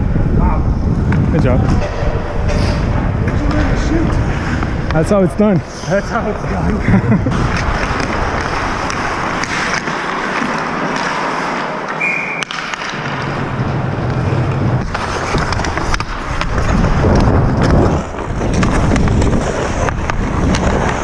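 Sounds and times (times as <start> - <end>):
air rushing over microphone: 0.0 - 9.2
skates scraping ice: 1.0 - 21.0
clicks of sticks and puck: 1.8 - 5.0, 7.4 - 21.0.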